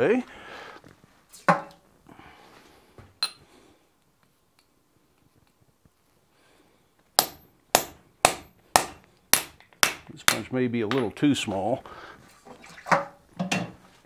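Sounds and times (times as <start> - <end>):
hammer striking punch on iron: 7.2 - 10.4.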